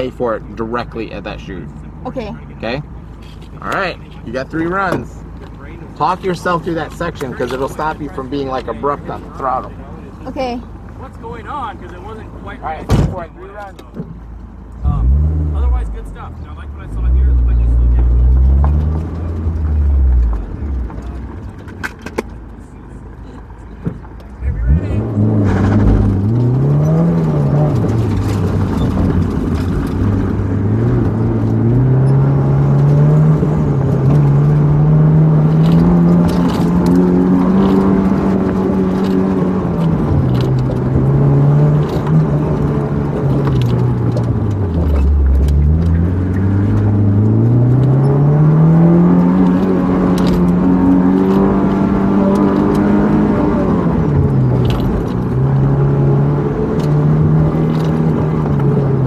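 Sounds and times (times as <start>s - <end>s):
sports car engine revving: 14.6s - 21.8s, 24.2s - 59.0s.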